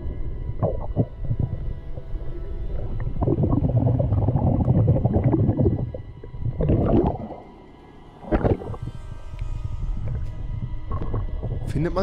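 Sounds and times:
diver's bubbles gurgling underwater: 0.5 - 7.5, 8.2 - 8.9, 10.9 - 11.7.

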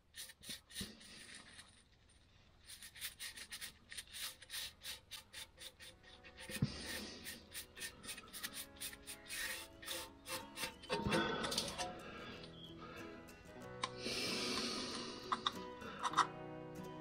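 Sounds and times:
paintbrush strokes on metal: 0.0 - 1.7, 2.6 - 12.0.

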